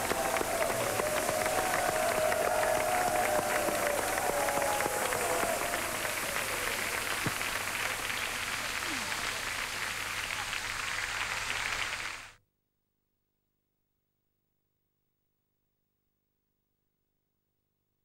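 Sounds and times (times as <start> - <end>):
crowd voices: 0.0 - 10.6
crowd applauding: 0.0 - 12.4.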